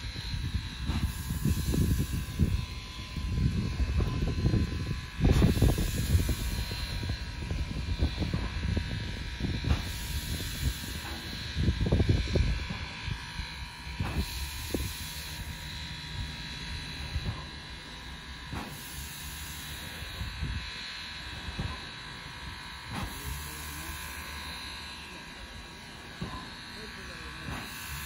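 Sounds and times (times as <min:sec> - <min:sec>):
steam hissing: 0:00.0 - 0:13.0, 0:13.9 - 0:28.0
low buzzing hum: 0:00.0 - 0:18.5.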